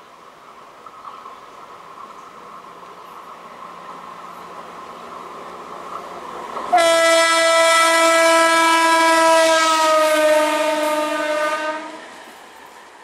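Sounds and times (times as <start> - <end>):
train horn long blast: 6.7 - 12.2.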